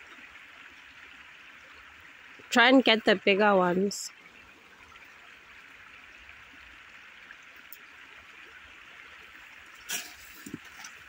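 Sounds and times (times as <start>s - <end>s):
rake knocking in branches: 9.8s - 11.0s.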